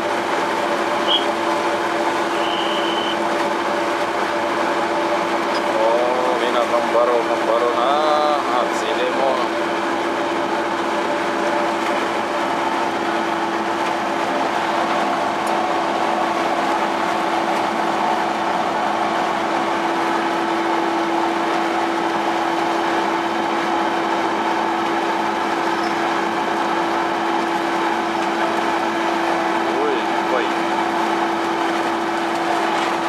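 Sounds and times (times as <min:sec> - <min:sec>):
constant hum: 0:00.0 - 0:22.4
boat machinery droning: 0:00.0 - 0:33.0.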